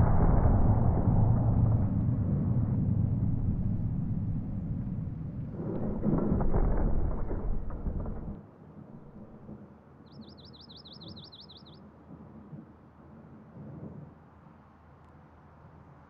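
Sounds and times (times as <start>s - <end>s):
deep heavy rumble: 0.0s - 8.4s.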